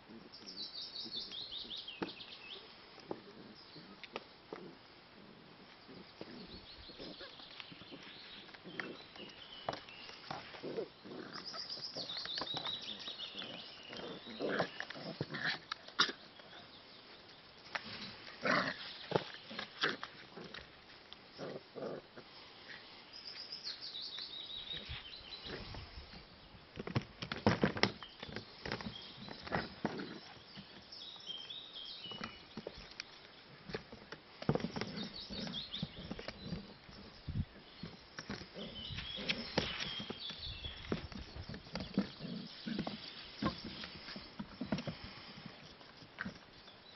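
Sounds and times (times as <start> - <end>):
small bird chirping: 5.9 - 15.5, 34.5 - 45.0.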